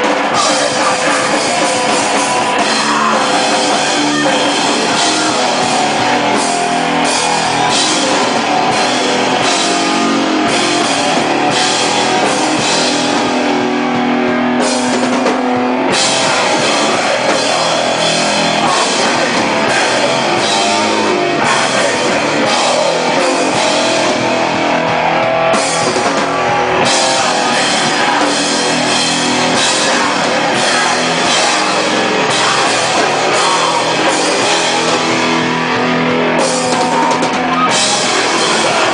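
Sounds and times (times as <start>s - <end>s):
distorted electric guitar: 0.0s - 38.9s
drum kit: 0.0s - 38.9s.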